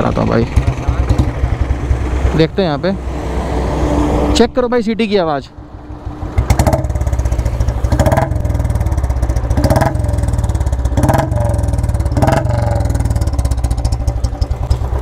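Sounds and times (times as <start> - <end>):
motorcycle engine idling: 0.0 - 2.9, 5.6 - 15.0
engine throttle blips: 5.7 - 15.0.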